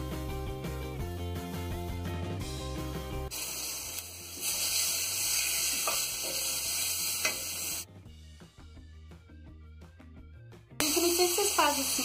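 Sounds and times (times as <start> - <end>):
soft background music: 0.0 - 12.0
meat and onion sizzling in a pot: 3.3 - 7.9, 10.8 - 12.0.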